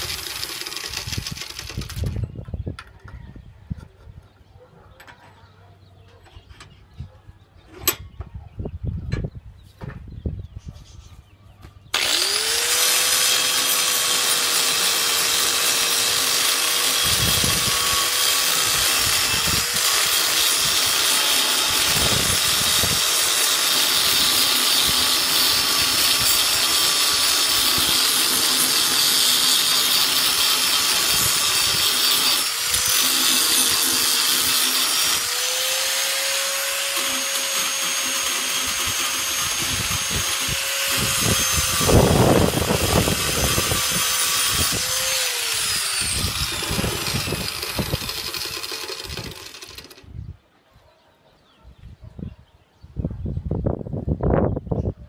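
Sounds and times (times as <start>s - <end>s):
angle grinder grinding metal tube: 12.0s - 50.0s.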